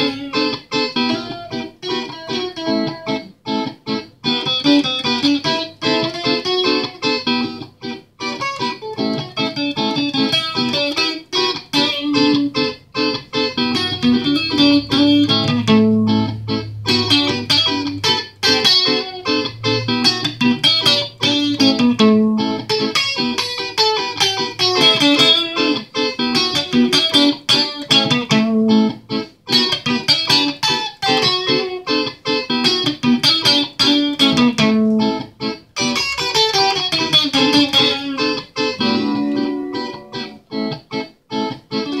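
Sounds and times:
electric guitar plucked notes: 0.0 - 42.0.

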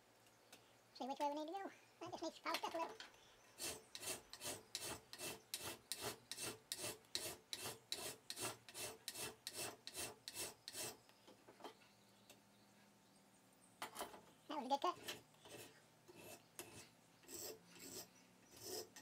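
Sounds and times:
hand file rasping on metal: 3.6 - 11.0, 14.9 - 19.0.

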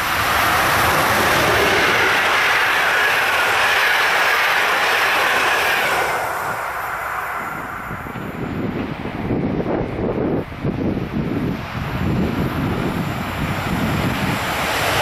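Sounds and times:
train wheels rushing on rail: 0.0 - 15.0
wind rumble on microphone: 6.1 - 15.0.

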